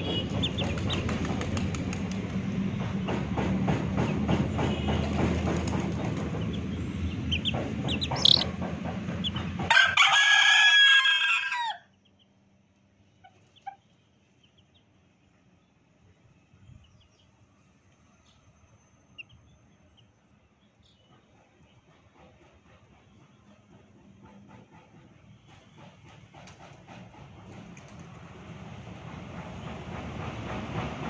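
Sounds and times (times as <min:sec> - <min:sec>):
loud rumbling with low hum: 0:00.0 - 0:09.7
rooster crowing: 0:09.7 - 0:11.9.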